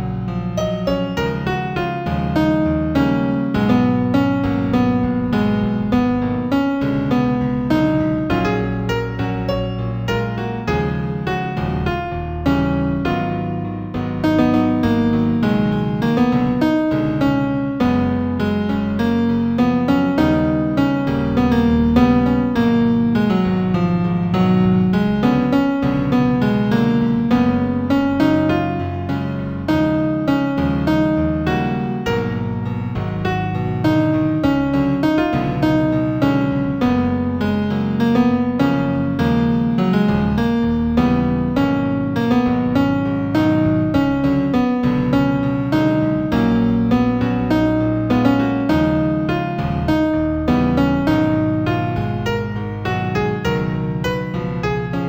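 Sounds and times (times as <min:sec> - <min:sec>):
new-age piano music: 0:00.0 - 0:55.0.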